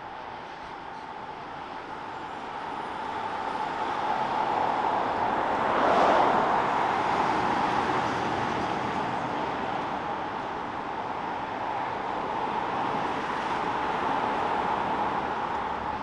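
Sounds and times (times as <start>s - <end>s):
electric train passing: 0.0s - 10.8s.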